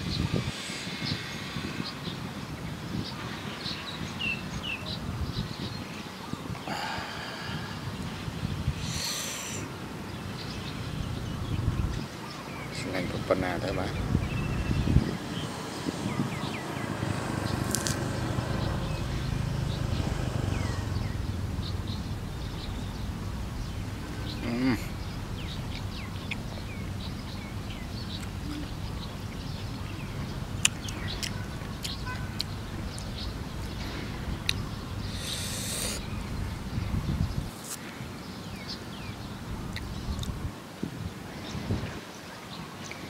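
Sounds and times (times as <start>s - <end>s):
small birds chirping: 0.0s - 43.0s
low background rumble: 17.6s - 35.2s.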